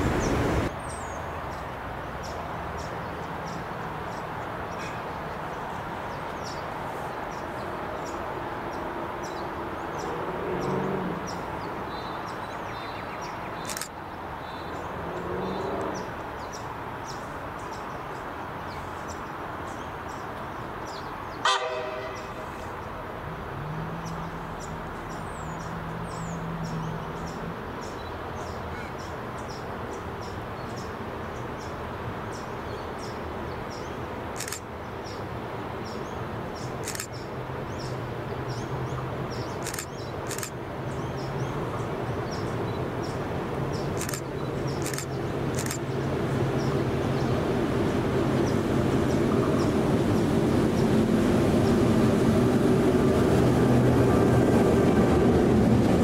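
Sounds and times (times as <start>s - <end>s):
locomotive engine rumble: 0.0s - 0.7s, 42.9s - 56.0s
small birds chirping: 0.0s - 21.4s, 24.0s - 50.9s
sharp clicks: 13.6s - 13.9s, 34.4s - 34.6s, 36.8s - 37.2s, 39.6s - 40.6s, 44.0s - 45.8s.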